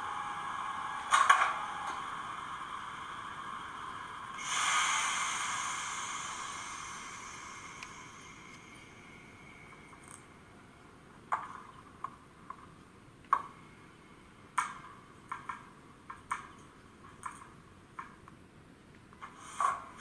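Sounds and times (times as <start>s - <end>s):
faint hiss: 0.0s - 11.8s.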